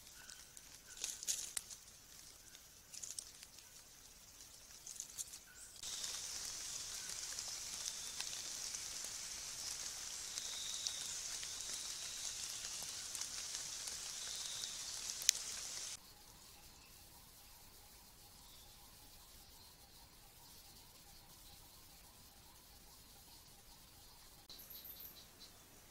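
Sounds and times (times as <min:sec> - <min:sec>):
rain on leaf litter: 0:00.0 - 0:16.0
raindrop ticks: 0:05.8 - 0:16.0.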